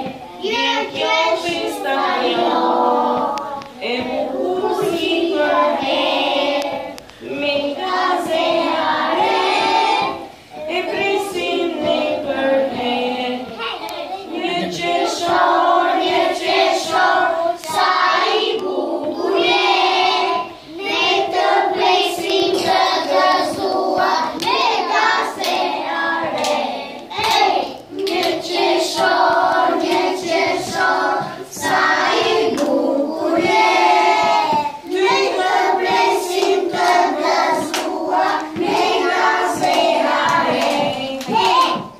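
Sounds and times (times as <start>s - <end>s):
children singing: 0.0s - 41.9s
hand claps: 26.2s - 26.6s, 27.2s - 30.9s, 34.2s - 41.9s.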